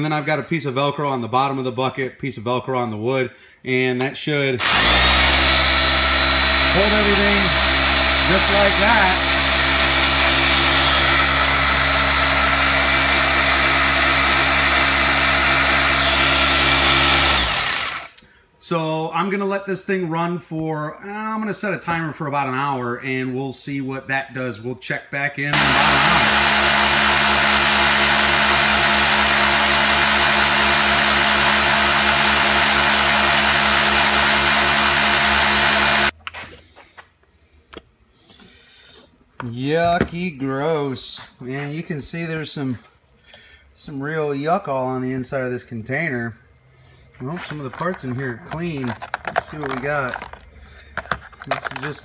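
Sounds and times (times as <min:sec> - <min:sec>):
orbital sander humming: 0:04.6 - 0:18.1, 0:25.6 - 0:36.1.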